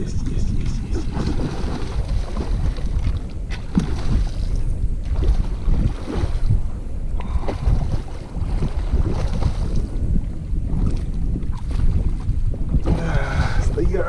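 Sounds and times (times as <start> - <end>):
wind buffeting microphone: 0.0 - 14.0
fish splashing in water: 0.9 - 6.6.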